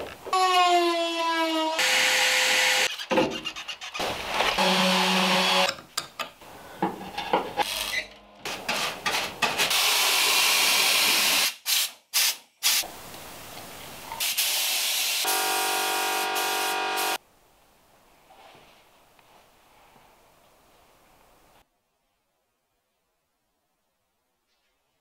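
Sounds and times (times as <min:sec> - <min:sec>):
steady spraying hiss: 0:09.8 - 0:15.3.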